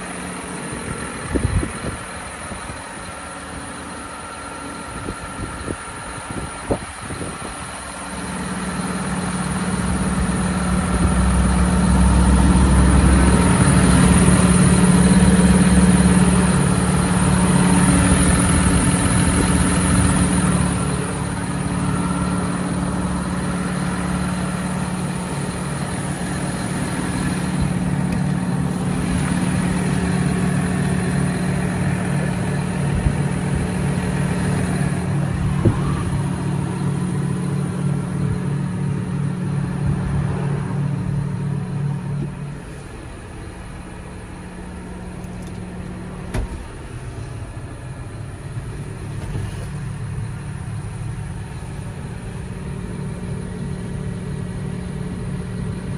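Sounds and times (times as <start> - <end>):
tractor diesel engine idling: 0.0 - 55.9.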